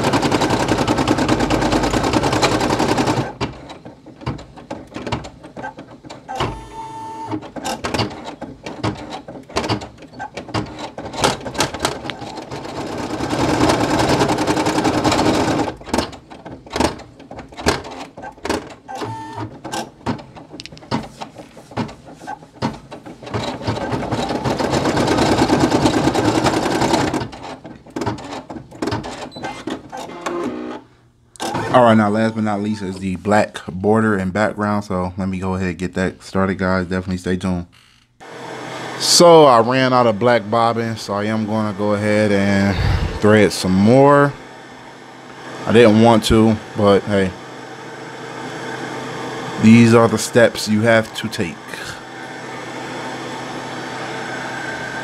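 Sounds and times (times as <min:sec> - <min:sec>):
embroidery machine needle stitching: 0:00.0 - 0:30.8, 0:31.4 - 0:32.6.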